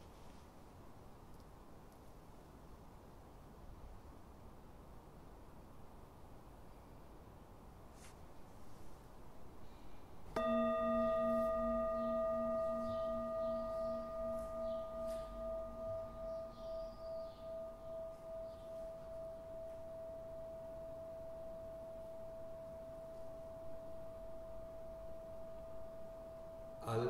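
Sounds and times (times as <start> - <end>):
singing bowl ringing: 10.3 - 27.0.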